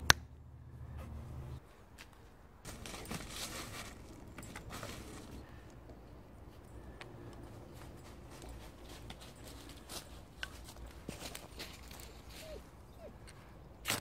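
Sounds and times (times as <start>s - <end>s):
footsteps in dry leaves: 2.6s - 5.5s, 7.5s - 12.6s.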